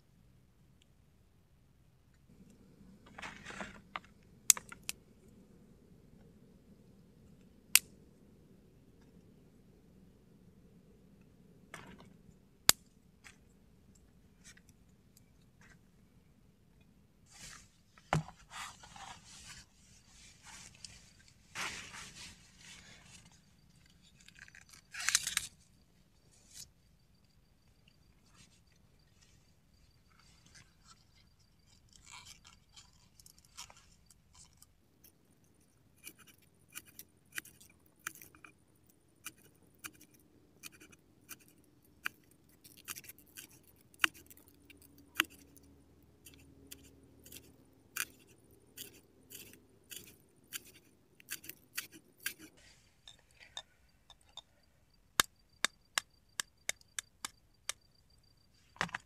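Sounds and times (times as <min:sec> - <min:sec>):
handling rustle: 0:17.3 - 0:24.3.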